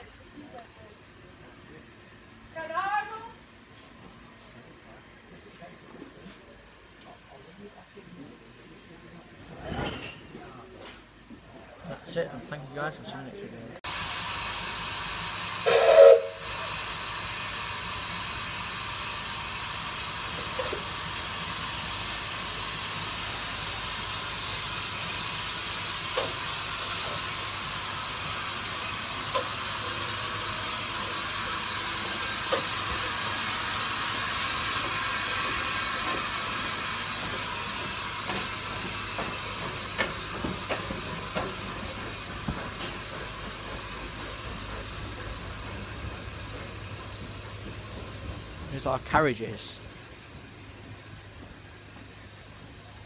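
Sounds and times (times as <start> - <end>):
steam hissing: 13.9 - 53.0
steam locomotive whistle blast: 15.6 - 16.6.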